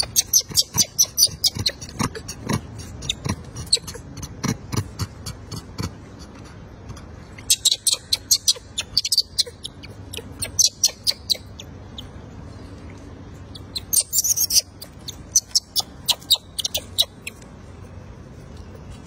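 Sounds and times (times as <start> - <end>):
infant monkey squeaks and shrieks: 0.0 - 5.9, 7.4 - 12.1, 13.4 - 17.4.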